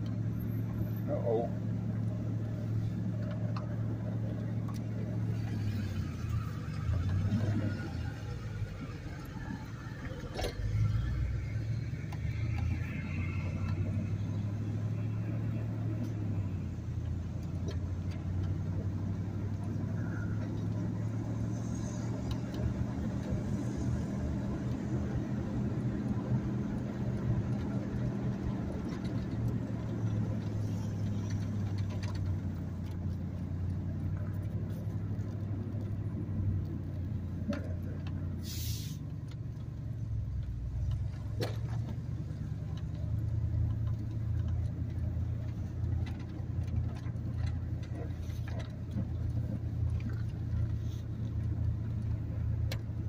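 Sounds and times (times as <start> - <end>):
truck engine and road noise: 0.0 - 53.0
brief hiss: 38.4 - 39.1.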